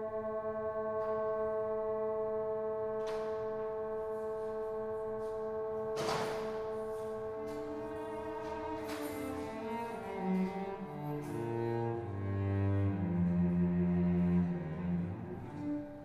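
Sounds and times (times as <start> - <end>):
ringing bell-like chord: 0.0 - 11.6.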